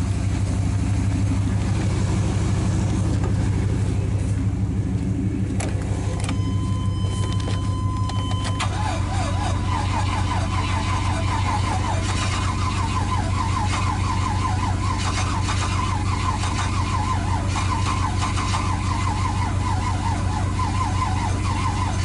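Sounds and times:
vehicle engine idling: 0.0s - 22.0s
electronic beep tone: 6.3s - 8.9s.

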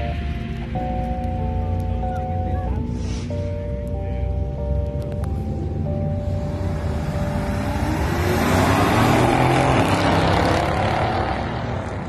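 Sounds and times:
cars accelerating hard: 4.4s - 12.0s.

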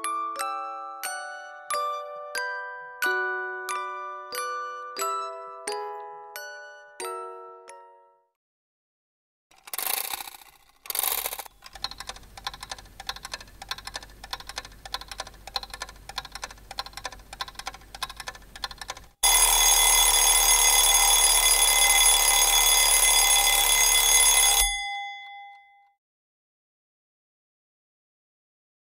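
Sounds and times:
alarm clock ticking: 9.6s - 25.7s
alarm clock bell ringing: 19.2s - 26.0s.

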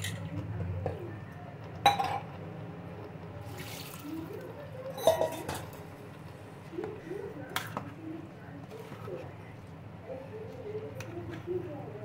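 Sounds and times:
spoon clinking on metal pot: 5.0s - 5.7s.

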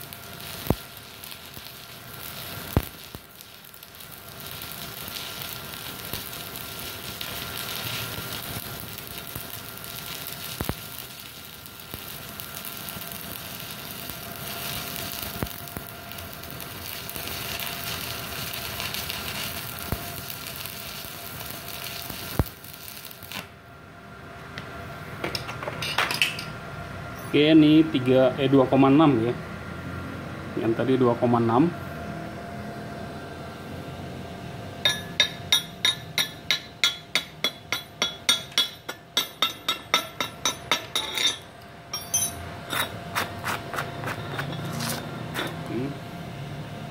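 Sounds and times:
welding arc crackling: 0.0s - 23.6s, 34.8s - 45.9s
sharp spatter pops: 0.6s - 3.5s, 7.5s - 13.4s, 21.8s - 23.5s.

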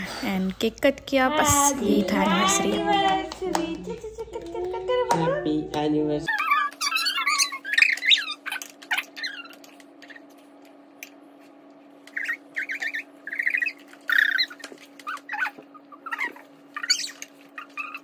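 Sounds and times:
steady low hum: 0.0s - 18.0s
high-pitched squeals and giggling: 6.3s - 10.3s, 12.1s - 18.0s.

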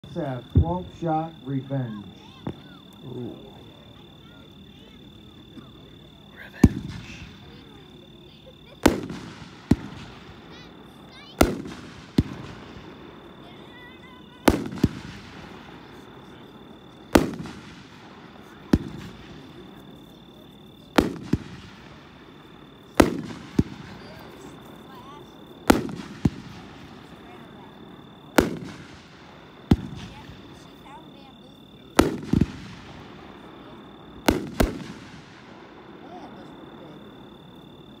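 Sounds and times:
firework bangs with echo: 0.0s - 3.6s, 6.3s - 8.0s, 8.6s - 20.1s, 20.8s - 31.2s, 31.8s - 36.2s
small firework pop: 2.3s - 3.0s.

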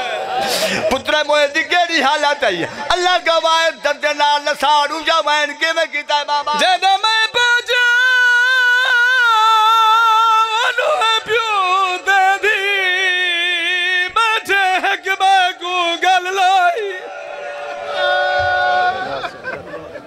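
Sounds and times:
man singing a lament: 2.6s - 17.0s.

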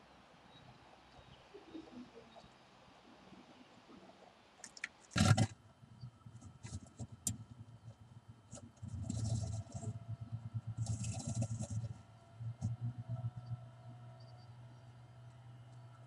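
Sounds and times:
bird scrabbling in a nest box: 4.7s - 5.5s, 8.5s - 12.8s
claws scratching on wood: 10.8s - 12.0s.

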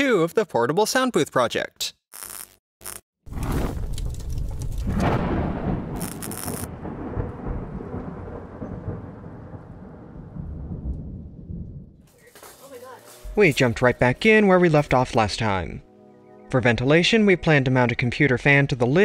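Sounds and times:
deep rumble: 3.3s - 12.0s.

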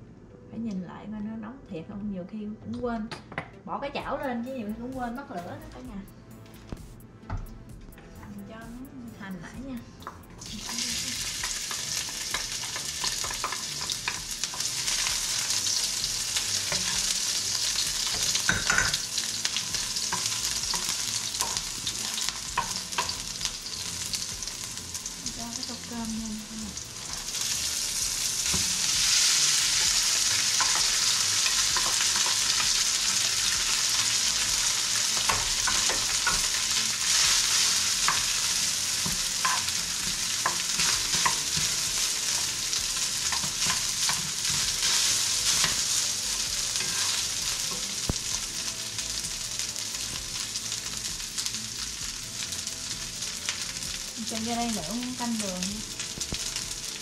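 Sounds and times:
onions sizzling in oil: 10.0s - 57.0s
utensil scraping a pan: 46.8s - 47.8s.

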